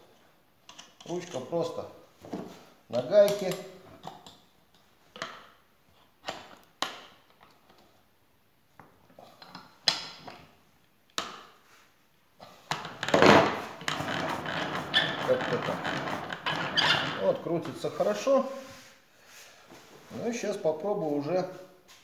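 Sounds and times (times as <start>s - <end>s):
knocks and clicks of hand-cranked machine: 13.1s - 16.8s
machine clatter: 13.9s - 16.7s.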